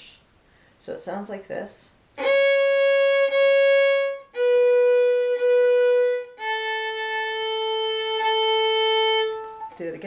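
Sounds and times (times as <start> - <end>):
fiddle bowed slowly: 2.2 - 10.0.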